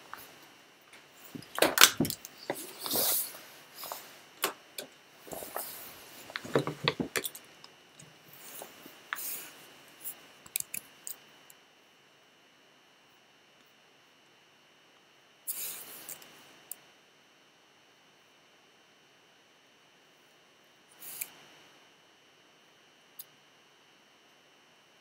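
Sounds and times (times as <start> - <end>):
clothing rubbing on microphone: 2.4 - 4.3, 5.2 - 7.0.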